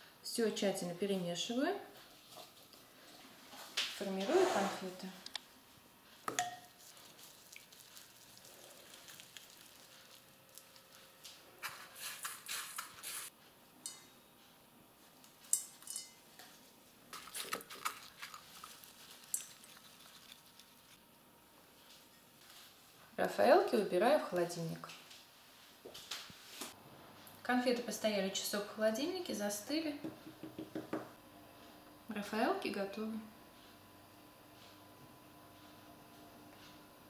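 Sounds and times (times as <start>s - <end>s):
plastic gloves rustling in coconut: 6.7s - 13.3s, 16.7s - 21.0s.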